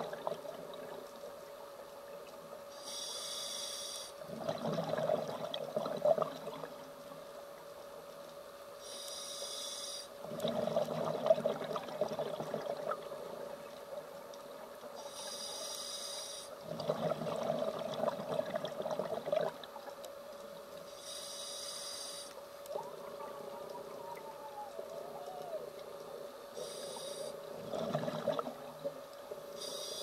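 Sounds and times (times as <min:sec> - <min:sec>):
exhaust bubbling underwater: 0:00.0 - 0:01.1, 0:04.2 - 0:06.8, 0:10.2 - 0:13.7, 0:16.6 - 0:20.0, 0:27.4 - 0:29.2
regulator inhalation hiss: 0:02.7 - 0:04.2, 0:08.8 - 0:10.2, 0:15.0 - 0:16.6, 0:20.9 - 0:22.4, 0:26.6 - 0:27.5, 0:29.5 - 0:30.0.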